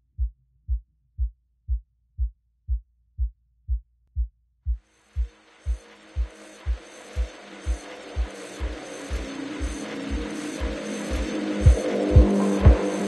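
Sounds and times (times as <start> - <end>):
deep electronic thump beat: 0.1 - 13.0
hissing wash with held tones: 4.9 - 13.0.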